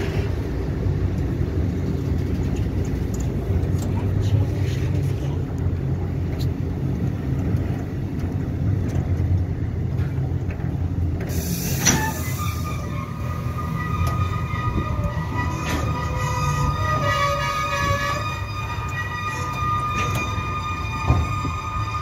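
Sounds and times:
freight train rumbling past: 0.0 - 22.0
high-pitched wheel squeal: 11.3 - 22.0.

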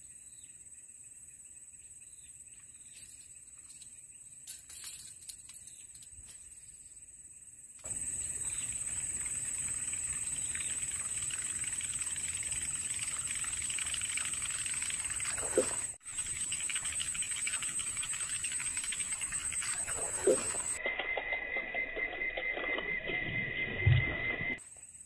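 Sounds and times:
lure spluttering on water: 13.6 - 20.8.

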